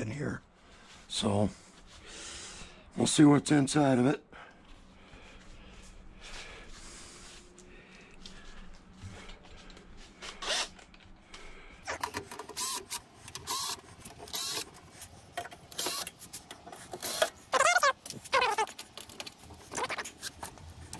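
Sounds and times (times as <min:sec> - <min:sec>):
cordless drill bursts: 0:10.4 - 0:10.7, 0:11.9 - 0:14.7, 0:15.7 - 0:16.2, 0:17.0 - 0:17.4.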